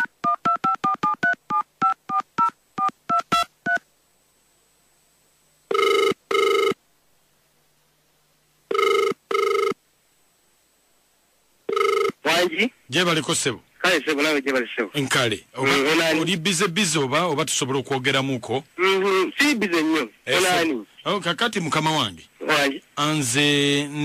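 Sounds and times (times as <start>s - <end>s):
keypad dialling beeps: 0.0s - 3.8s
telephone ringback tone: 5.7s - 6.8s, 8.7s - 9.8s, 11.7s - 12.2s.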